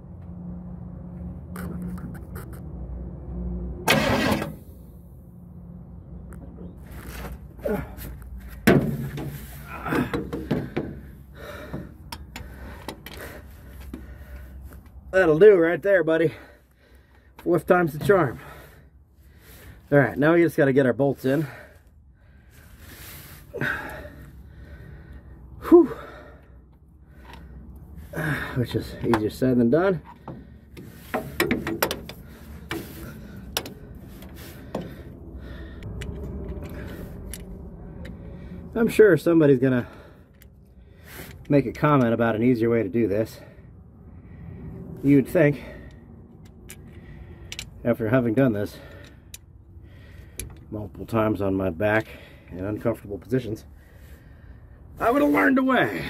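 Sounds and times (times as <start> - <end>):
metal clunks and knocks: 8.6 - 9.4, 10.0 - 13.2, 30.0 - 32.9
sharp metal clicks and taps: 12.0 - 13.2, 50.3 - 50.7.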